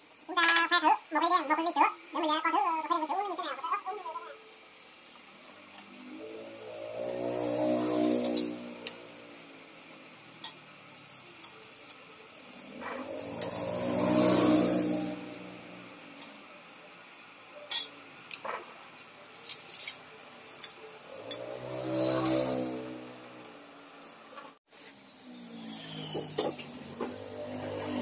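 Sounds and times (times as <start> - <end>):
droning sound: 5.9 - 10.8.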